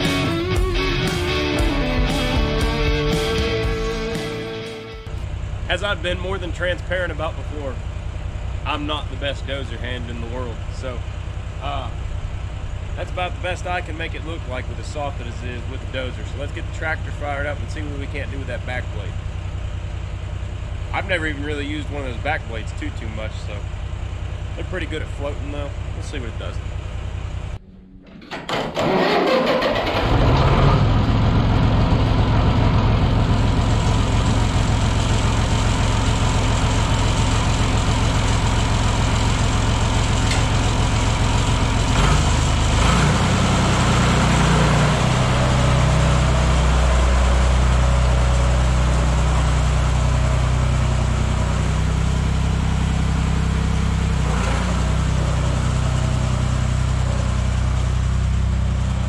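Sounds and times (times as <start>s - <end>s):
tractor engine idling: 0.0s - 59.0s
tractor engine revving: 0.0s - 59.0s
tractor starter cranking: 27.9s - 31.8s.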